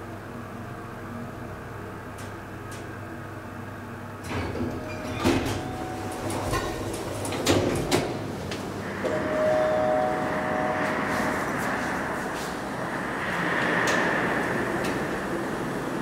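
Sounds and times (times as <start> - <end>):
elevator doors sliding: 4.2 - 16.0
hydraulic pump whine: 8.8 - 15.5.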